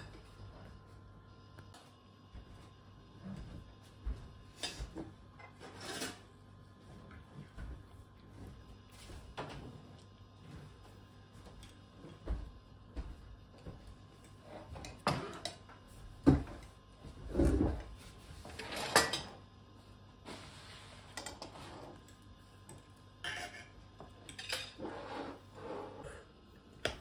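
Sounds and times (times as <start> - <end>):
dishes and cutlery clattering: 23.2 - 24.9.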